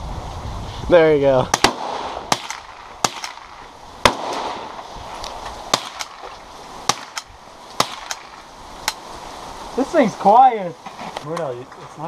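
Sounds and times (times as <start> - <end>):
gunshots: 1.5 - 4.8, 5.7 - 6.3, 6.9 - 8.4.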